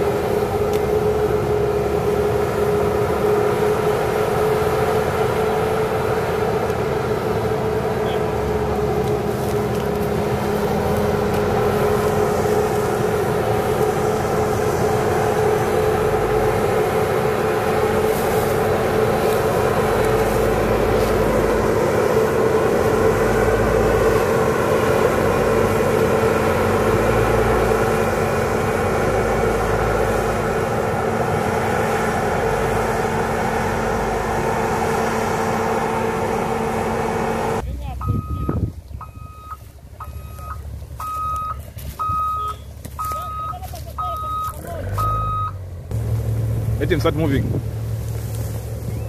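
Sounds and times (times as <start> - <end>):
diesel engine droning: 0.0 - 49.0.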